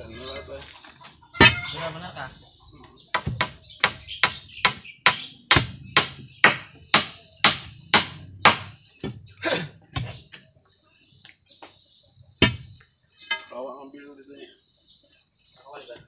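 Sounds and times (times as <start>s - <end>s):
blade chopping bamboo: 3.2s - 8.7s.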